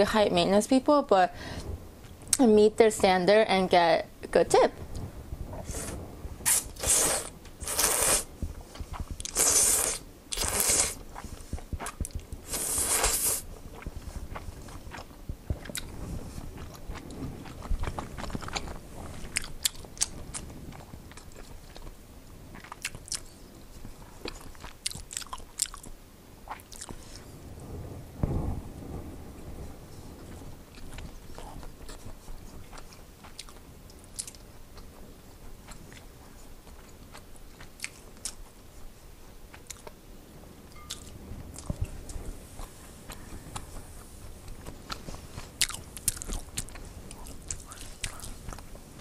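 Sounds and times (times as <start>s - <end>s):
close-up chewing: 5.0s - 27.3s, 30.3s - 40.0s, 40.8s - 49.0s
noodles slurped: 5.6s - 11.0s, 11.8s - 13.9s.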